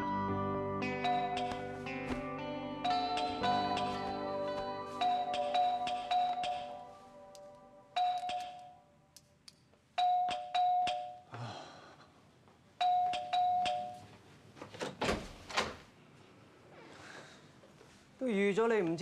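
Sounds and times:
doorbell ding-dong chime: 0:00.9 - 0:01.6, 0:02.8 - 0:06.9, 0:08.0 - 0:08.8, 0:12.8 - 0:14.0.

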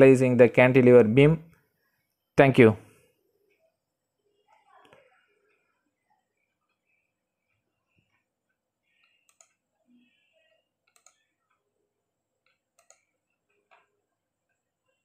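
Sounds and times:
computer mouse clicks: 0:08.9 - 0:09.6, 0:10.8 - 0:11.6, 0:12.4 - 0:14.6.

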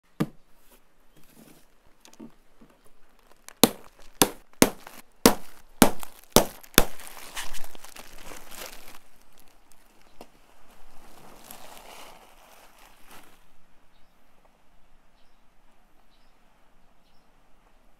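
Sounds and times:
plastic wrap crinkling: 0:01.6 - 0:13.5
plastic straps snapping: 0:03.2 - 0:10.3.

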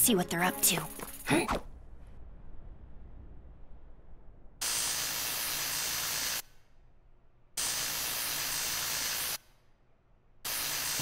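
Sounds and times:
gas welding torch hissing: 0:04.6 - 0:06.6, 0:07.6 - 0:09.5, 0:10.4 - 0:11.0.

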